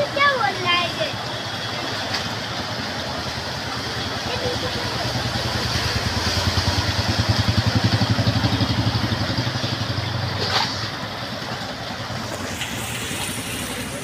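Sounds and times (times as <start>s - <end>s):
rain and running water: 0.0s - 14.0s
motorcycle engine exhaust pulsing: 4.3s - 11.5s.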